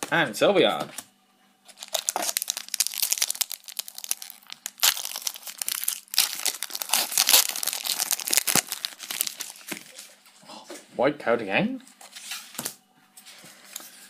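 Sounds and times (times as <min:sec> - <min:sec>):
foil wrapper crinkling and tearing: 0:01.7 - 0:10.2.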